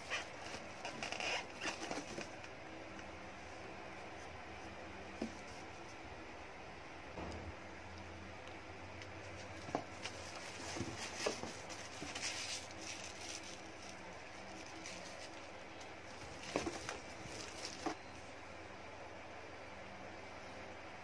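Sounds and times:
plastic wrap crinkling: 0:10.0 - 0:18.0.

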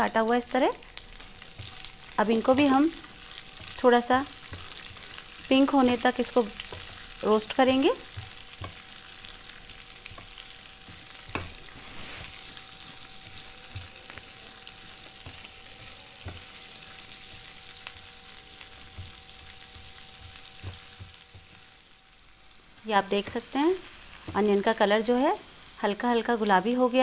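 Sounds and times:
onions sizzling in hot oil: 0:00.0 - 0:27.0
spatula knocking and scraping pan: 0:01.4 - 0:21.7.

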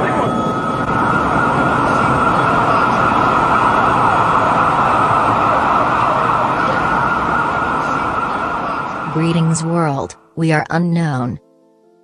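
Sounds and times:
loud rushing din: 0:00.0 - 0:09.3
emergency sirens wailing: 0:00.0 - 0:10.8.

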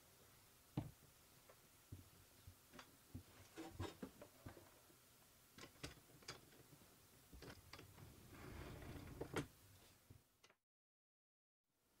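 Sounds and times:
carriage sliding down rods: 0:07.4 - 0:09.5.

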